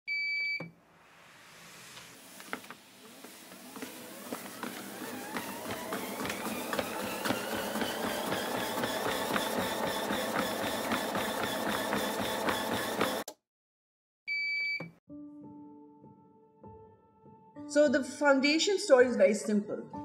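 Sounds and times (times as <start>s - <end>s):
film projector whirring: 2.3s - 13.3s.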